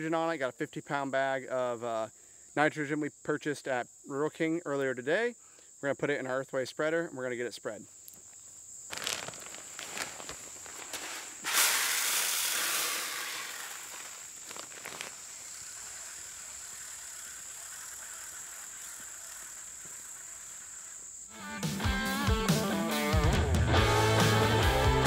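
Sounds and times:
high-pitched insect buzz: 0:08.0 - 0:23.2
granules pouring into hopper: 0:09.0 - 0:15.1.

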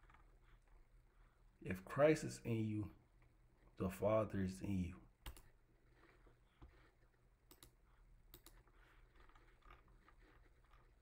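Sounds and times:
computer mouse clicks: 0:05.2 - 0:05.6, 0:07.4 - 0:10.9.

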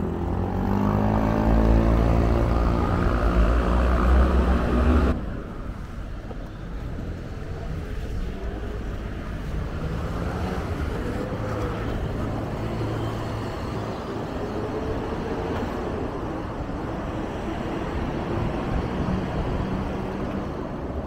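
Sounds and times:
road traffic passing: 0:00.0 - 0:21.0.

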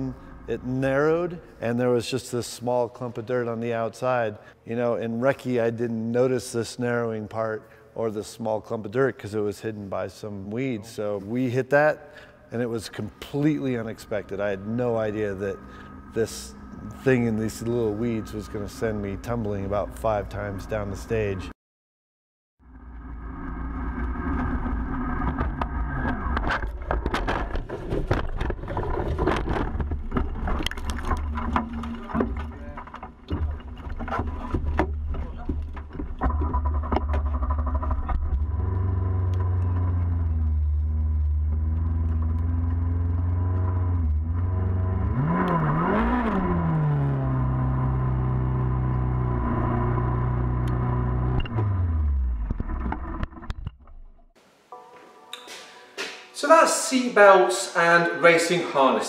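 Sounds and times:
car engine running: 0:13.4 - 0:21.4, 0:31.2 - 0:53.5.

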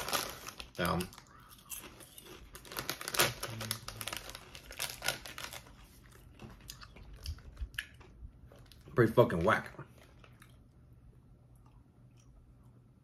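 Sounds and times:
chip bag crinkling and rustling: 0:00.0 - 0:07.6.

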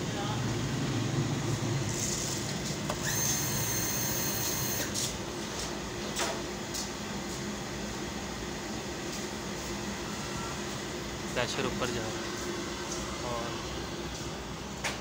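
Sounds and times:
gas burner humming: 0:00.0 - 0:05.3.

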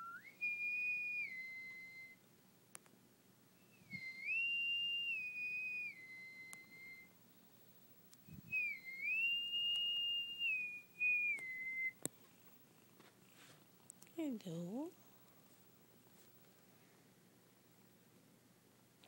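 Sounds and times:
person whistling a tune: 0:00.0 - 0:02.2, 0:03.6 - 0:07.1, 0:08.4 - 0:12.0.

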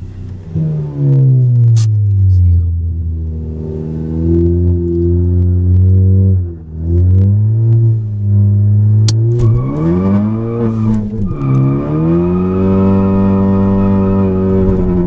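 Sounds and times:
car engine accelerating hard: 0:00.0 - 0:15.0.

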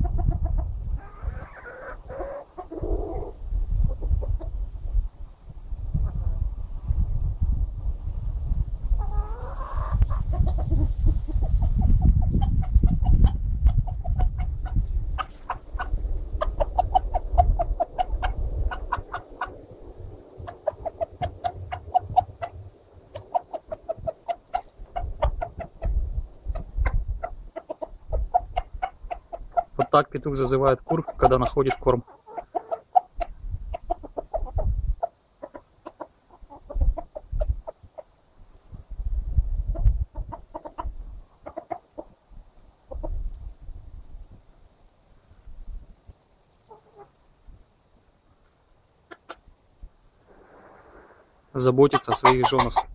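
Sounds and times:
chickens clucking: 0:00.0 - 0:04.7, 0:09.0 - 0:38.2, 0:39.6 - 0:43.3, 0:46.5 - 0:47.2, 0:49.0 - 0:49.6, 0:51.6 - 0:52.9.

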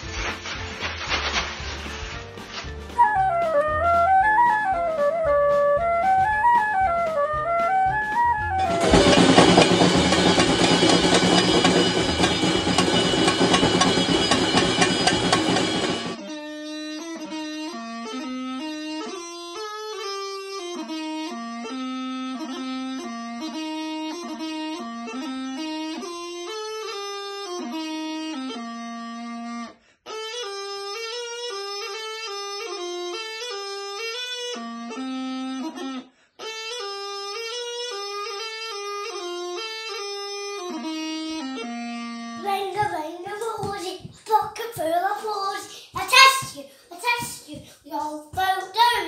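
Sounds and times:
bagpipe practice chanter tune: 0:06.4 - 0:42.9
drums and cymbals crashing: 0:08.6 - 0:16.2.

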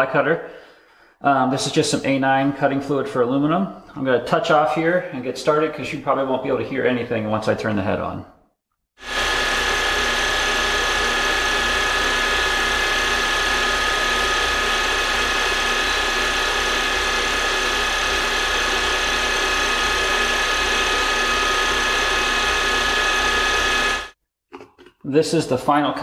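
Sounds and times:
milling machine whining: 0:09.0 - 0:24.2.

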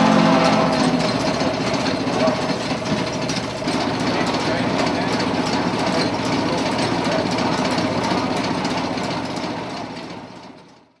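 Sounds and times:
washing machine engine clattering: 0:00.0 - 0:10.9.

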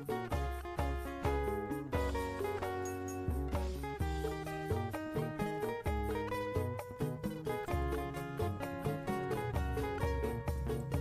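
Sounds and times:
melodic instrumental music: 0:00.0 - 0:11.0.

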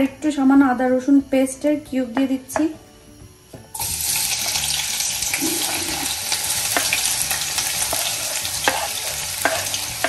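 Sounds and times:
onions sizzling in oil: 0:03.7 - 0:10.0.

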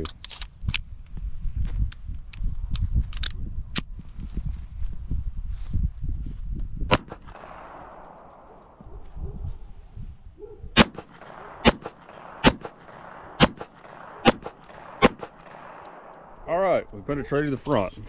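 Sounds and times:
pistol shots with echo: 0:06.9 - 0:08.9, 0:10.7 - 0:16.8.

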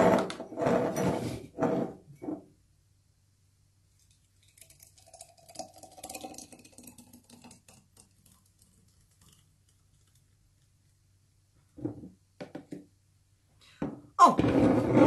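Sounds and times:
thick smoothie pouring into glass: 0:04.0 - 0:10.8.

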